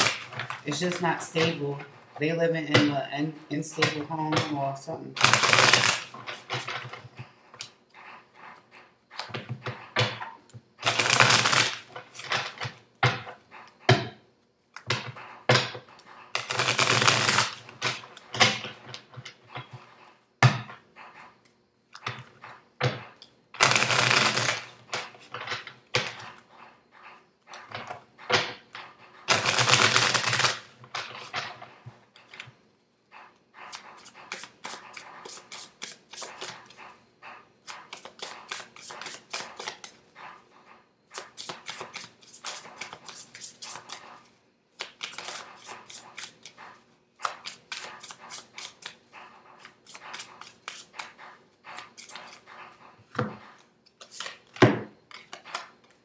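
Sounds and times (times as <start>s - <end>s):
cards clicking and flicking: 5.2s - 6.1s, 10.8s - 12.4s, 16.4s - 18.0s, 23.6s - 24.7s, 29.3s - 30.7s, 37.7s - 40.0s, 41.2s - 44.1s, 44.8s - 46.6s
cards shuffling: 16.4s - 18.0s, 23.6s - 24.7s, 29.3s - 30.7s, 37.7s - 39.9s, 41.2s - 44.2s, 44.8s - 46.6s, 47.2s - 49.0s.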